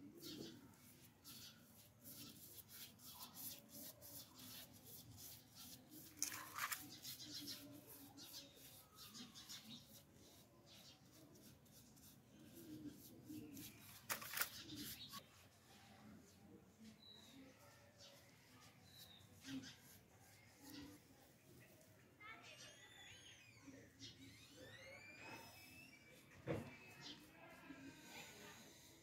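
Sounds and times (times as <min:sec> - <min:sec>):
paintbrush strokes: 0:00.0 - 0:21.9, 0:24.0 - 0:29.0
brush scraping: 0:00.2 - 0:15.3.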